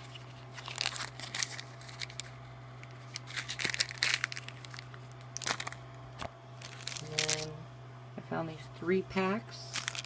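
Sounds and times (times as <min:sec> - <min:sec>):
plastic packaging crinkling: 0:00.0 - 0:07.5, 0:09.6 - 0:10.0.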